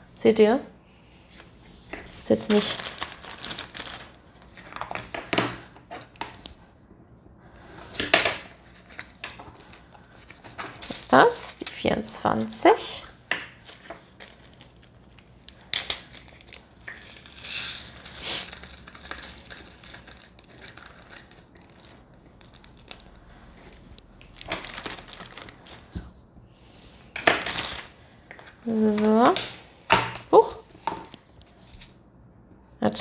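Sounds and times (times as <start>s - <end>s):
plastic bag crinkling: 2.0s - 6.2s, 13.1s - 26.0s
plastic beads rattling into jar: 15.7s - 23.2s.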